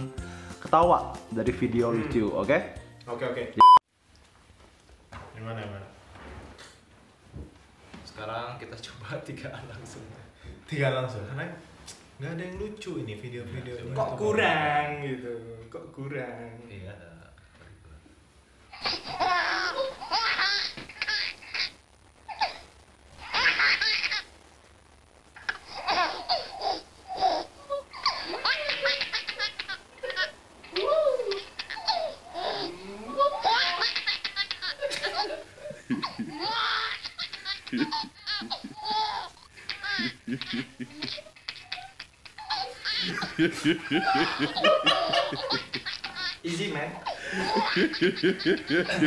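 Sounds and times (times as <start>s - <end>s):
baby laughing: 18.7s - 21.7s, 23.2s - 24.3s, 25.4s - 49.0s
young men laughing: 32.7s - 41.8s, 42.5s - 49.0s
man laughing: 34.5s - 41.8s, 42.6s - 46.4s, 47.0s - 49.0s.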